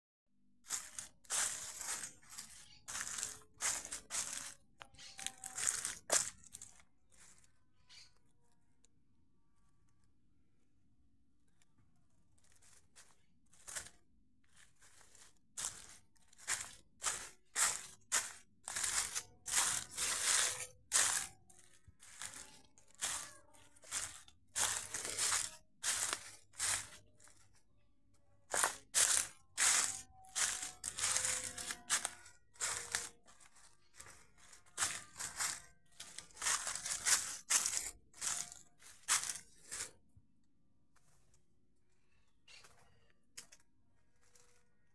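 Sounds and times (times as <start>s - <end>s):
footsteps crunching dry leaves: 0.6s - 8.1s, 12.4s - 27.6s, 28.4s - 40.0s.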